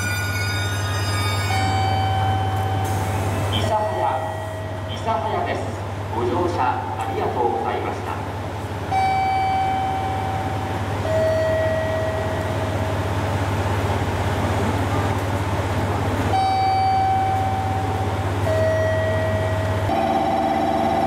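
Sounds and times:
two-tone chime: 0.0 - 3.0
diesel railcar idling hum: 0.0 - 21.0.

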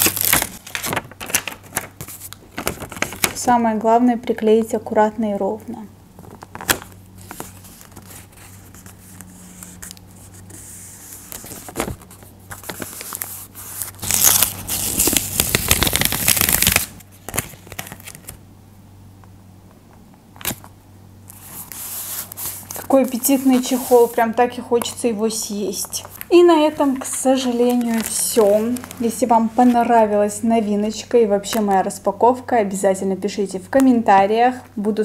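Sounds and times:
paper crinkling and tapping: 0.0 - 3.4, 6.2 - 10.0, 11.1 - 14.3, 25.9 - 29.9.

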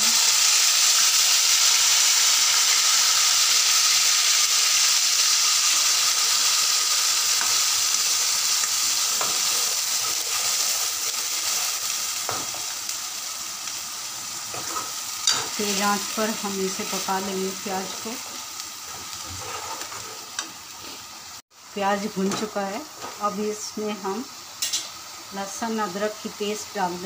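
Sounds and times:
onion paste sizzling in hot oil: 0.0 - 27.0.

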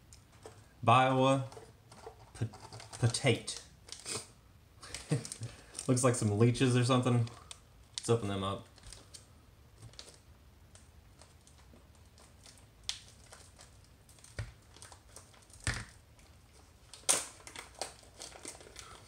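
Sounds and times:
plastic package crinkling: 4.8 - 6.2, 7.0 - 19.0.

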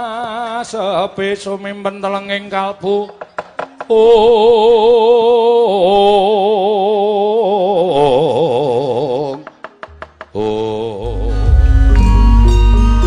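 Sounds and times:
person singing with vibrato: 3.8 - 9.5, 10.3 - 13.0.

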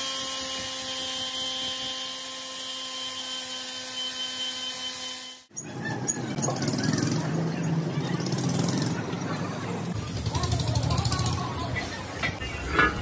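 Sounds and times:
noisy background: 5.5 - 13.0.

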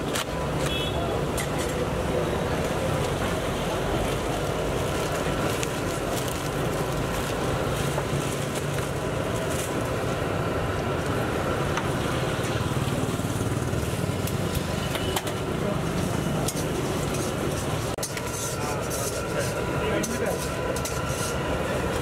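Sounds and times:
food stall burner roar: 0.0 - 22.0
traffic roar: 0.0 - 22.0.

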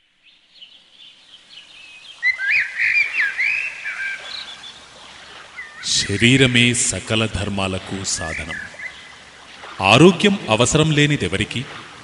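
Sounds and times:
birds chirping: 0.0 - 11.8
soft steady hiss: 0.0 - 12.0.

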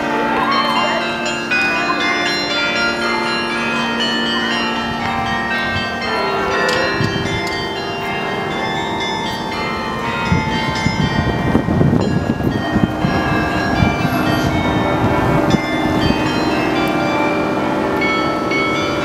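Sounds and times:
church bells ringing: 0.0 - 19.0.

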